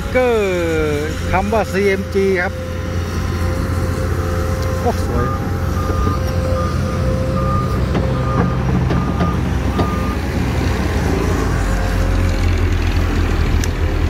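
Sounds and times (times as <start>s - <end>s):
warning beeper: 0.0s - 10.2s
steady whine: 0.0s - 12.6s
diesel engine running under load: 0.0s - 14.0s.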